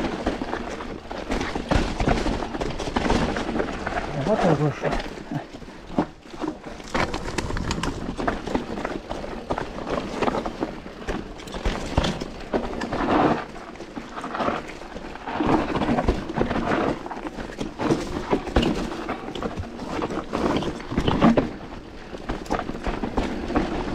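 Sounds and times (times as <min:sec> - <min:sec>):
bike rattling: 0:00.0 - 0:23.9
tyres crunching on loose ground: 0:00.0 - 0:23.9.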